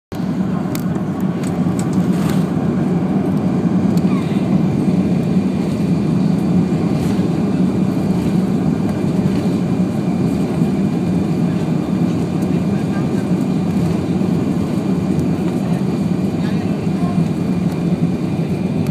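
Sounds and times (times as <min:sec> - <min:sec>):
jet engines and runway drone: 0:00.1 - 0:18.9.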